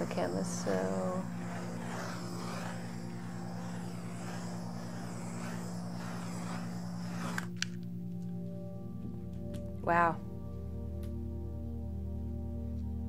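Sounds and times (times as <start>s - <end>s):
torch flame hissing: 0.0s - 7.9s
torch shutoff clicks: 0.0s - 7.9s.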